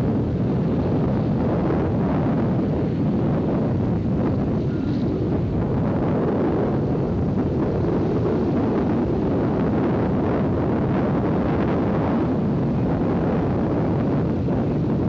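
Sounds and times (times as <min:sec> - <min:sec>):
road noise: 0:00.0 - 0:15.0
vehicle engine rumble: 0:00.0 - 0:15.0
wind buffeting microphone: 0:00.0 - 0:15.0.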